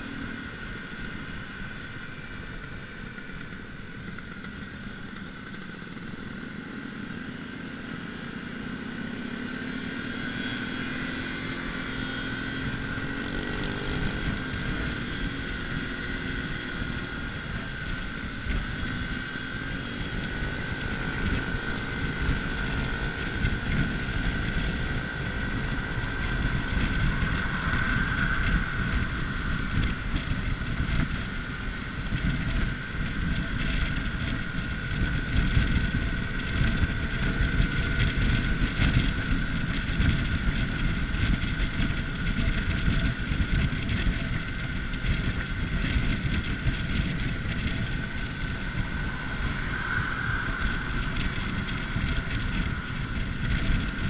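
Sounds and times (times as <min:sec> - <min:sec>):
scooter engine running: 0:00.0 - 0:54.0
steady high whine: 0:00.0 - 0:54.0
wind buffeting on microphone: 0:12.3 - 0:54.0.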